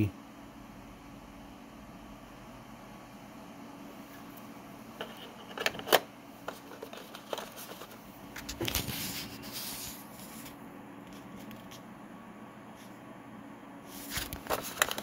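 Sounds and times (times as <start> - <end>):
rustling scrape: 8.6 - 11.8
small clicks and knocks of figures: 14.2 - 15.0.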